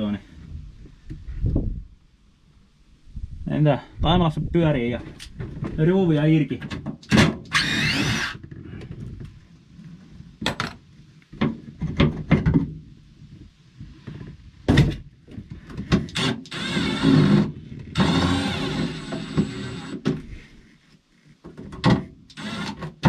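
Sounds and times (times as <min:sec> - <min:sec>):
cordless drill running: 0:07.5 - 0:08.4, 0:16.1 - 0:20.0, 0:22.3 - 0:22.8
knocks of tool and boards handled: 0:10.4 - 0:12.8, 0:14.1 - 0:16.2, 0:21.4 - 0:22.2.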